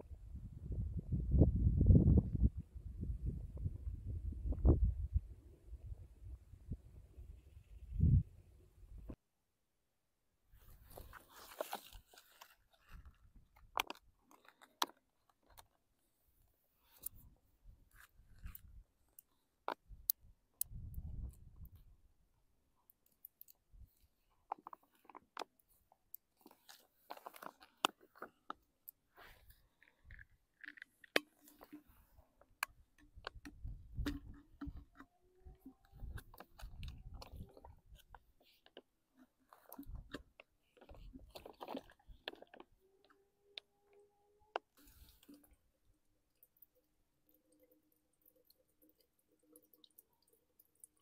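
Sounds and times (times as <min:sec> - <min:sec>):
plastic clicks and crinkles: 0:10.9 - 0:15.8, 0:22.8 - 0:23.7, 0:24.3 - 0:45.7.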